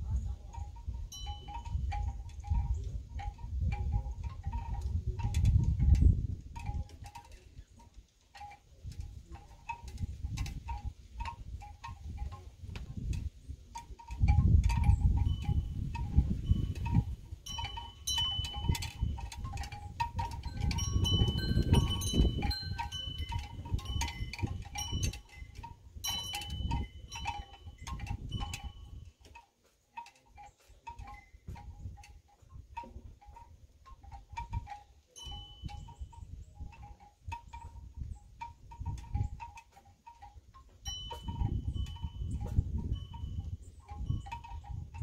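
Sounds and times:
wind rumble on microphone: 0:00.0 - 0:08.0, 0:08.6 - 0:29.3, 0:30.7 - 0:45.0
wind chimes ringing: 0:00.0 - 0:45.0.

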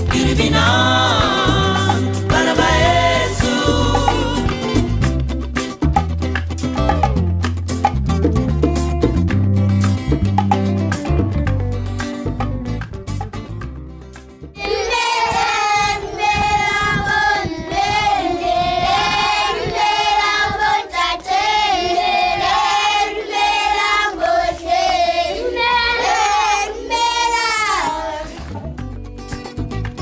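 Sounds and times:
children singing together: 0:00.0 - 0:04.7, 0:14.6 - 0:28.5
children clapping along: 0:00.0 - 0:07.6, 0:13.6 - 0:17.1, 0:27.0 - 0:30.0.

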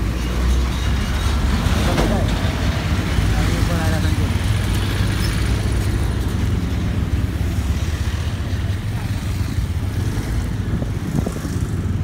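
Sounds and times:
bus passing: 0:00.0 - 0:12.0
road traffic rumble: 0:00.0 - 0:12.0
motorcycles going by: 0:03.0 - 0:12.0.

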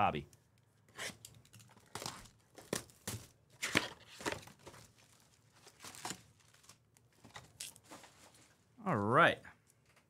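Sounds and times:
plastic wrapping crinkling and tearing: 0:01.4 - 0:08.5.

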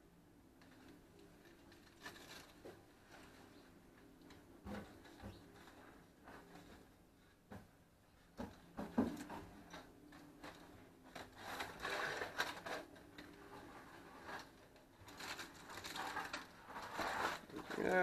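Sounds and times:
aluminium foil crinkling: 0:00.6 - 0:03.6, 0:10.2 - 0:18.0.

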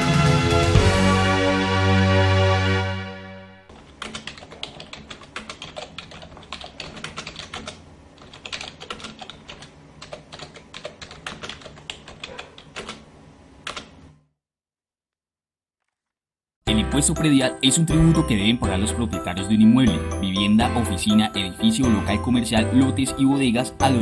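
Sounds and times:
keyboard typing: 0:03.7 - 0:14.0.

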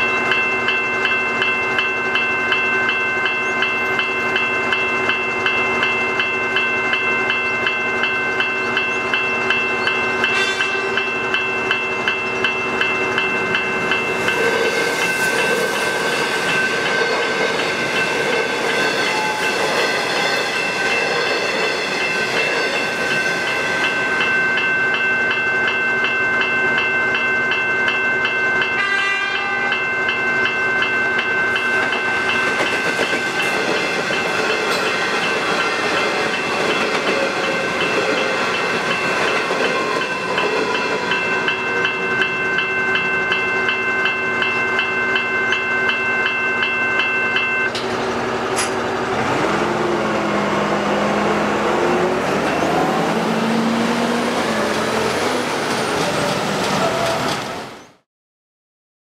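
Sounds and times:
level crossing bells ringing: 0:00.0 - 0:57.0
electric train passing on rails: 0:00.0 - 0:58.0.

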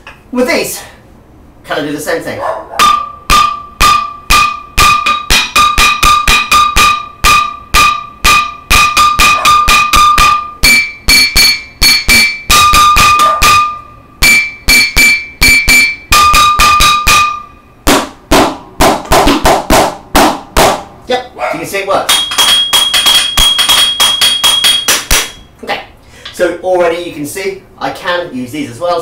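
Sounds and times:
wooden spoons drumming on metal pot: 0:02.8 - 0:20.8, 0:22.1 - 0:25.4
dull strikes: 0:02.8 - 0:21.0, 0:22.0 - 0:25.5.

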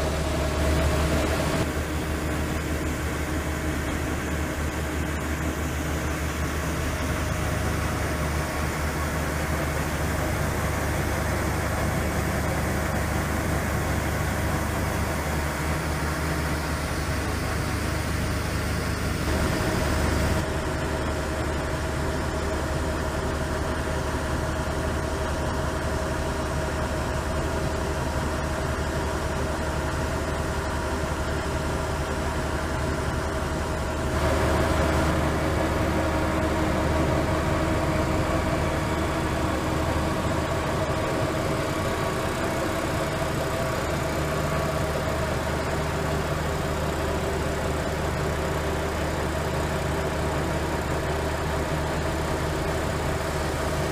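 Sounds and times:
grain unloader auger droning: 0:00.0 - 0:53.9.

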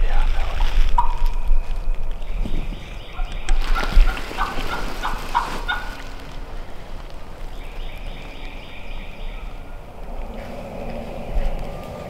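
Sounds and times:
turkey gobbling: 0:00.9 - 0:01.5, 0:02.7 - 0:06.4.

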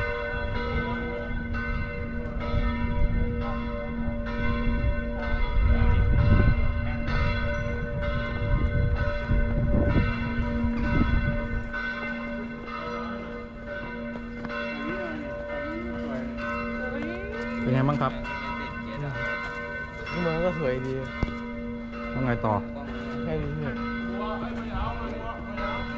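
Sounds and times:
church bells ringing: 0:00.0 - 0:25.9.

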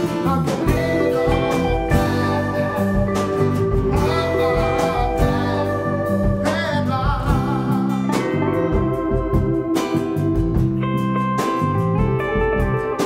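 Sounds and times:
man singing: 0:00.0 - 0:08.9
acoustic guitar: 0:00.0 - 0:13.0
electric bass: 0:00.0 - 0:13.0.

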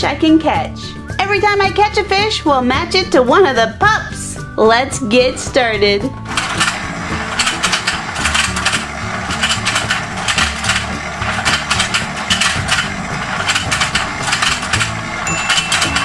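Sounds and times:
toy motor and gears clicking: 0:06.3 - 0:16.0.

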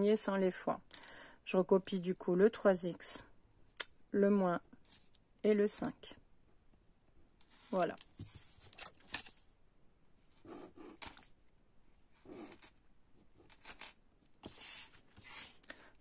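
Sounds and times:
pen scratching on paper: 0:10.4 - 0:11.1, 0:12.2 - 0:12.7, 0:14.4 - 0:15.6
ruler shifting on paper: 0:13.4 - 0:15.7.

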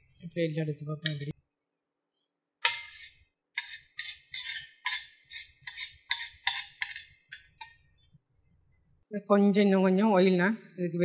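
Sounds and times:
metal spoon scraping frying pan: 0:02.6 - 0:08.0.

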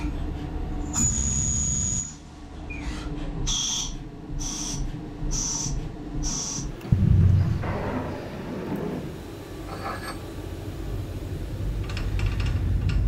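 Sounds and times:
loud low thump: 0:06.9 - 0:09.3.

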